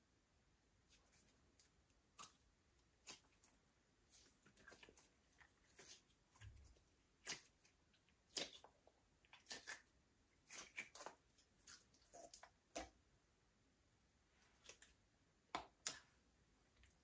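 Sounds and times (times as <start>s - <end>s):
slime squishing: 0.8s - 13.0s.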